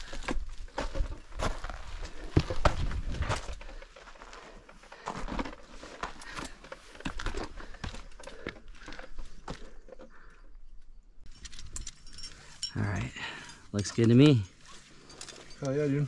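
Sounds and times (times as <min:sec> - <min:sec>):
footsteps on gravel: 0:00.0 - 0:08.1.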